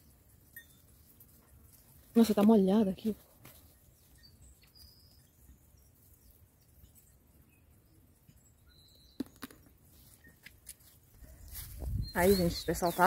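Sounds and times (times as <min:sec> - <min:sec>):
faint bird chirps: 0:03.8 - 0:10.4, 0:11.2 - 0:13.0.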